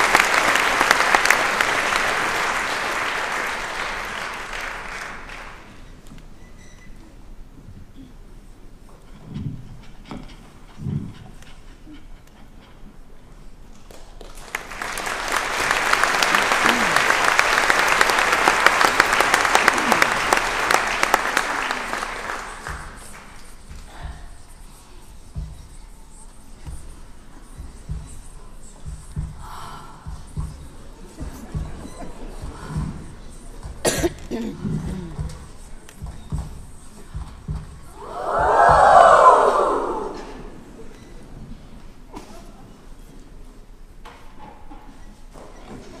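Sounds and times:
audience applauding: 0.0s - 5.8s, 13.9s - 23.4s.

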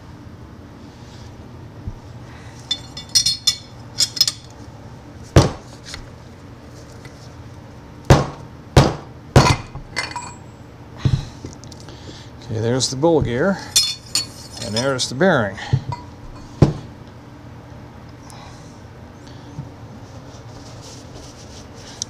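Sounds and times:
metal parts clinking: 2.7s - 4.5s, 13.7s - 15.0s.

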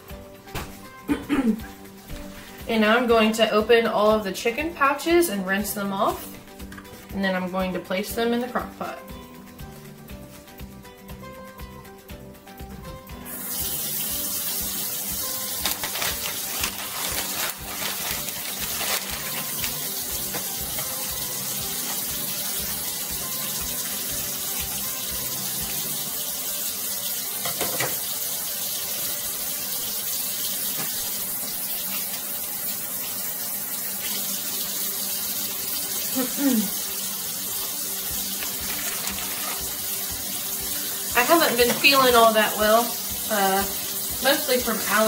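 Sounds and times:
faucet running into sink: 13.3s - 45.0s.

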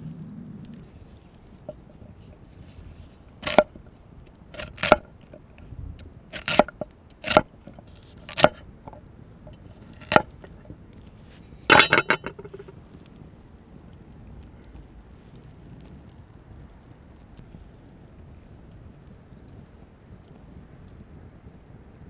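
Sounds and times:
cleaver chopping on wooden board: 3.4s - 3.7s, 4.6s - 5.0s, 6.4s - 7.5s, 8.3s - 8.6s, 10.0s - 10.4s.

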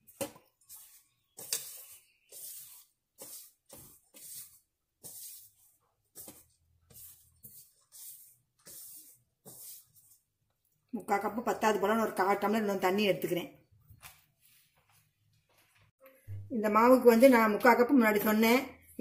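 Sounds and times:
hand rubbing flour in steel pot: 0.0s - 10.7s.

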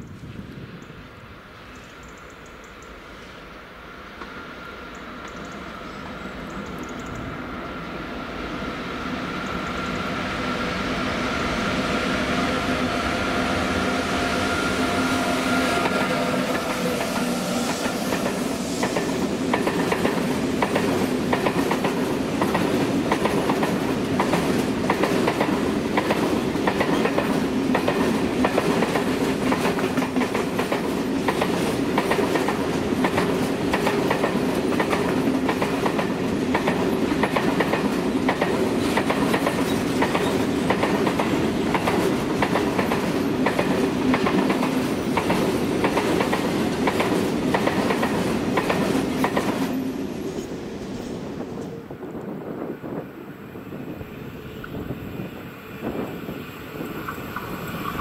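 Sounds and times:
train running rumble: 4.2s - 58.0s
train wheels clicking over rail joints: 15.7s - 51.7s.

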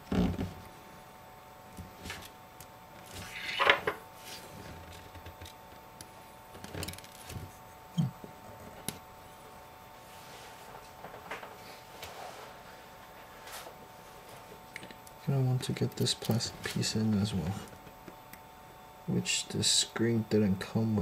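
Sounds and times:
rustling scrape: 11.7s - 14.5s.

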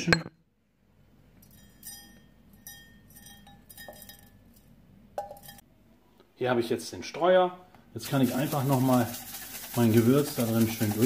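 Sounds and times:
glass bowl clinking on metal canister: 1.4s - 4.4s
spice rub being poured: 8.0s - 11.0s.

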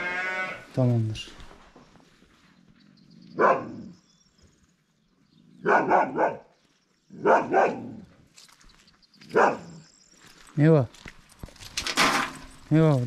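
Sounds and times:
dog barking: 3.4s - 3.9s, 5.6s - 6.5s, 7.2s - 8.1s, 9.2s - 9.8s.

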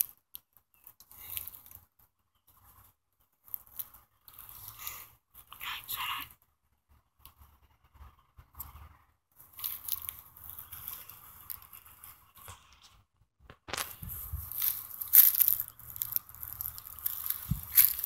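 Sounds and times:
leaves and brush rustling: 9.4s - 12.8s, 13.7s - 18.0s.

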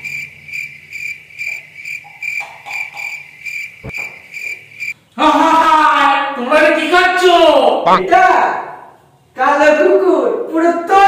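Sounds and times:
cricket chirping: 0.0s - 5.0s.

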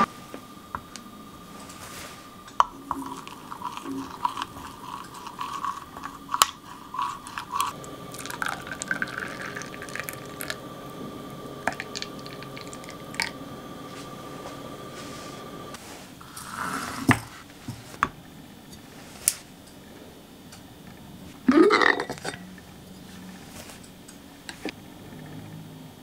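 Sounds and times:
liquid pouring into a glass: 2.9s - 11.0s, 11.6s - 13.4s.

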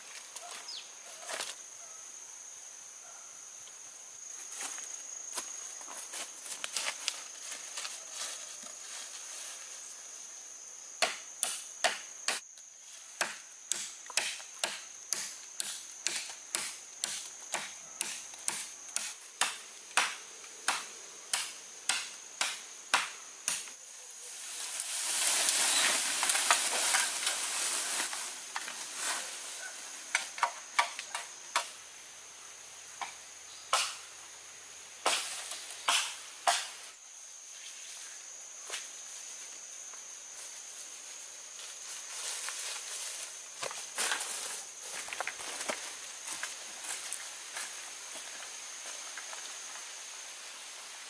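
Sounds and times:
machete chopping bamboo: 11.0s - 12.5s, 13.2s - 23.8s, 33.7s - 34.0s, 35.0s - 36.8s
bamboo falling through leaves: 24.3s - 29.7s, 41.7s - 47.2s.

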